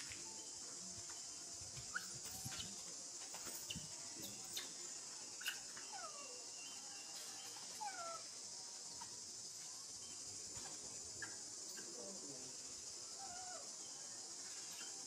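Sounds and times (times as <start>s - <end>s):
steady high hiss: 0.0s - 15.0s
baby monkey squeaking: 1.9s - 2.8s.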